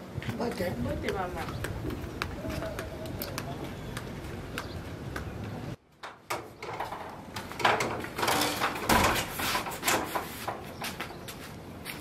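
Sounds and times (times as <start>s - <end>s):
door knocking scraping and rattling: 6.3s - 10.7s.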